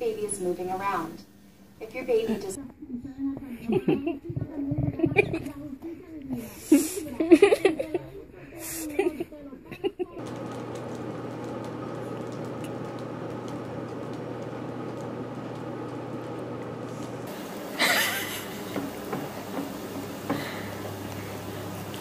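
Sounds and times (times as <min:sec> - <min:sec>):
steady low hum: 0:10.2 - 0:22.0.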